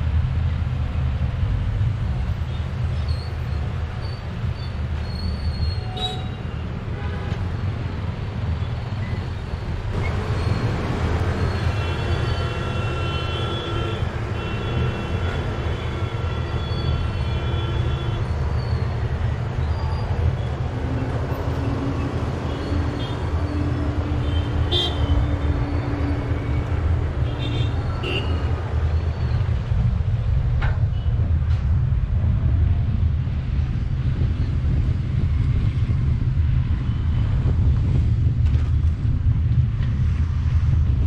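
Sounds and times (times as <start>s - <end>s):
road traffic rumble: 0.0s - 41.0s.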